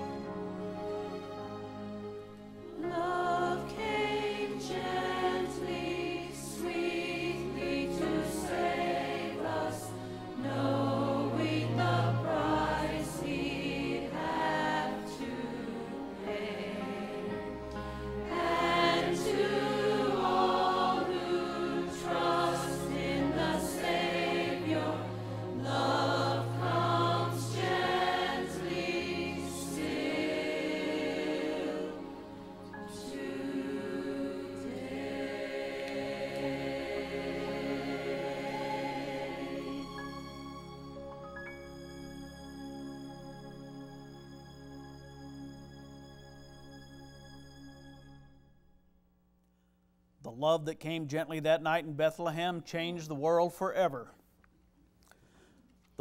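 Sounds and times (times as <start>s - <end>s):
choir singing: 0.0s - 41.0s.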